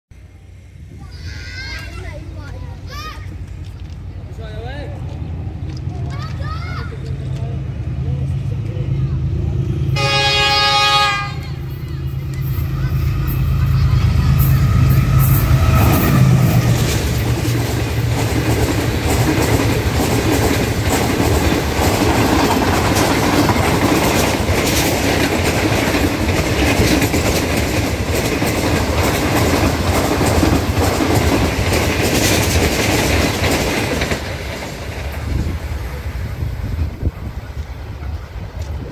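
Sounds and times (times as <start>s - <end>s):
diesel locomotive engine: 0.1s - 38.9s
train wheels clattering over rail joints: 15.2s - 35.8s.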